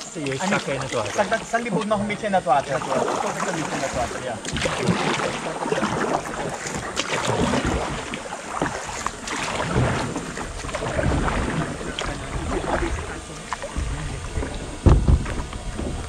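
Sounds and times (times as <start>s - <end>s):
paddle knocks: 0.0s - 16.0s
paddle splashing in water: 0.0s - 16.0s
wind rumble on microphone: 5.9s - 16.0s.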